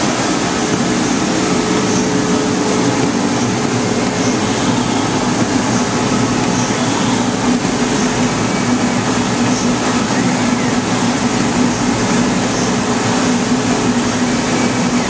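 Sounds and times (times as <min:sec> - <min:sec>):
cutting machine droning: 0:00.0 - 0:08.8.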